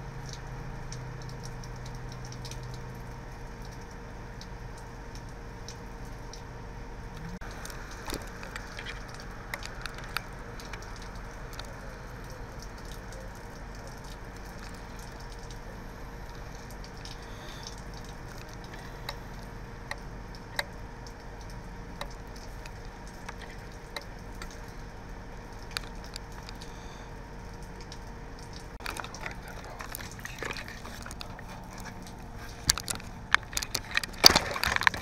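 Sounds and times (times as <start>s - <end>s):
raindrops ticking nearby: 0.0s - 35.0s
heavy rain hiss: 7.4s - 12.8s, 14.1s - 20.2s.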